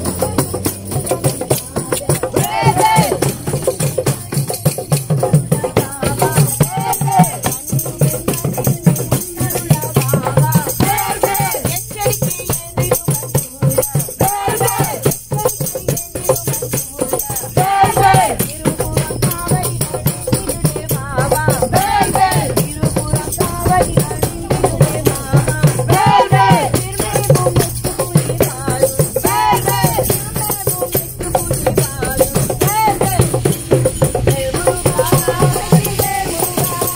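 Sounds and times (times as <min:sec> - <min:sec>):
hand drum beating: 0:00.0 - 0:36.9
jingling hand percussion: 0:00.0 - 0:36.9
voices singing devotional phrases: 0:00.0 - 0:36.9.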